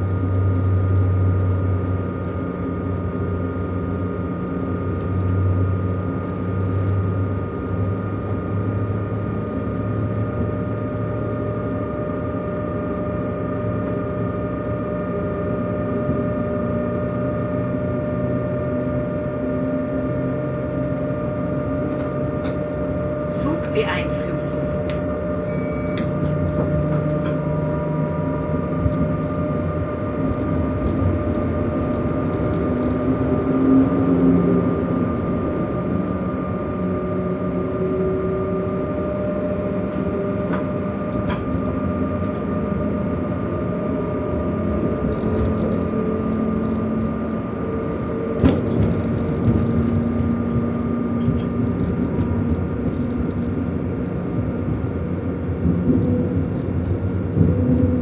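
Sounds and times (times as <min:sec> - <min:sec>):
electric locomotive whine: 0:00.0 - 0:58.0
wheels rumbling on rail: 0:25.4 - 0:36.4, 0:47.6 - 0:58.0.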